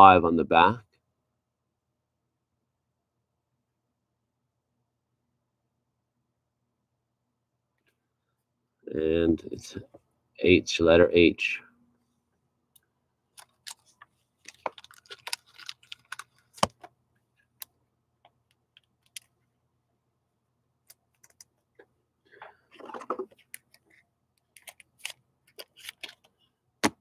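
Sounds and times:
plastic rustling: 13.4 - 16.7.

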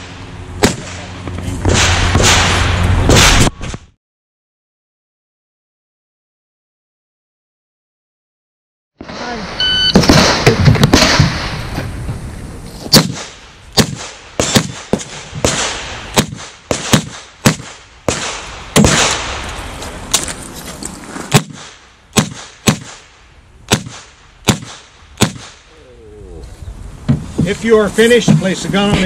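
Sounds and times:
shot timer beep: 9.6 - 10.0.

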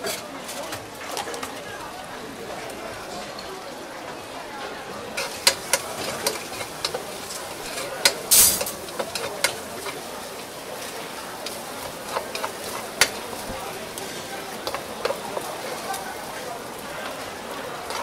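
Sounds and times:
rice sizzling in a wok: 4.8 - 18.0
spatula scraping a pan: 5.1 - 16.0, 17.8 - 18.0.

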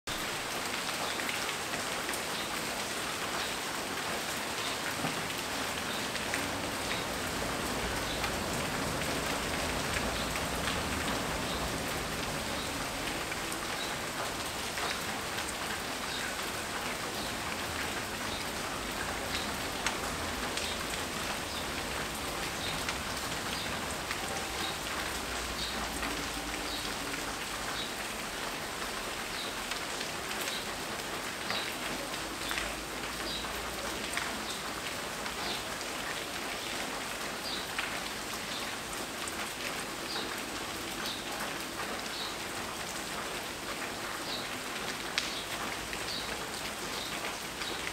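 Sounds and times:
raindrops ticking close by: 0.1 - 47.9
steady rain: 0.1 - 47.9.

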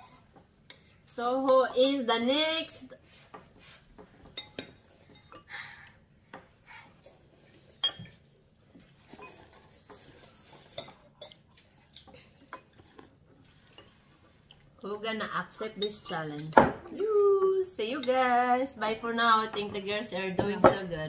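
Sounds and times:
utensils clinking on ceramic bowls: 4.2 - 5.5, 7.7 - 8.3, 9.0 - 11.8, 15.6 - 16.7.

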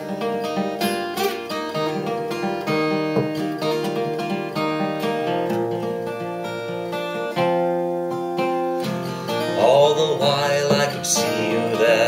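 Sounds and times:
acoustic guitar playing chords: 0.0 - 12.0
man singing: 9.3 - 12.0.

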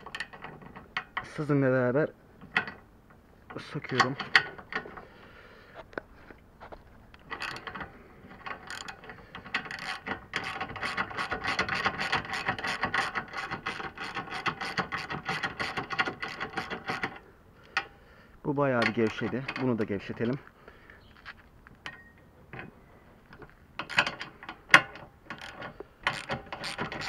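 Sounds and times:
ratchet wrench clicking: 8.6 - 17.2, 23.8 - 27.0.

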